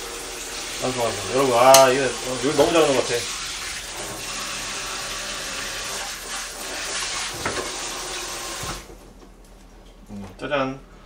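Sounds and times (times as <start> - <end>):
food sizzling in a frying pan: 0.0 - 3.8.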